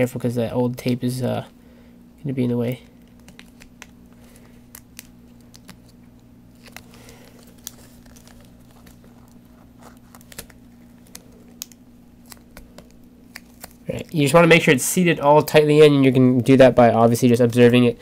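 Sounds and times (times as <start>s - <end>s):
steady low hum: 0.0s - 18.0s
clicks and crinkles of connector: 2.8s - 13.9s.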